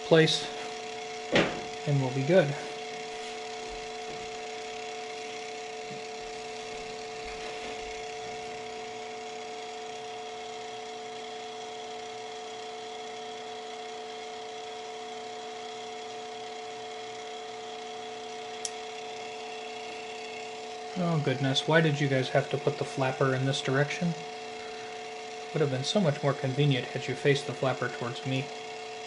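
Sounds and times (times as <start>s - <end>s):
motor and gearbox hum: 0.0s - 29.0s
soft knocks from handling motor: 1.3s - 1.8s.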